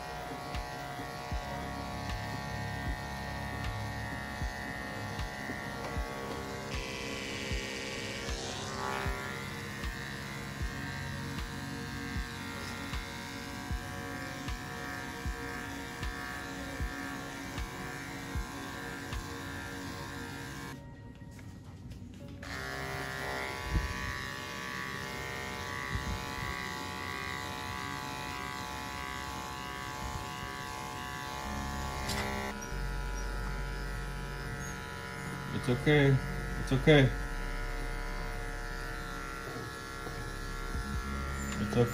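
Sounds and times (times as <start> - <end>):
electric clippers buzzing: 0.0 - 20.8, 22.4 - 41.9
background music with steady beat: 0.0 - 41.9.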